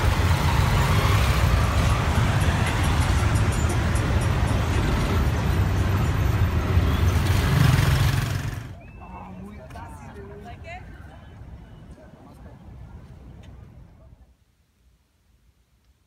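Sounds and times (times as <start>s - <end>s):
bus engine rumbling: 0.0s - 11.9s.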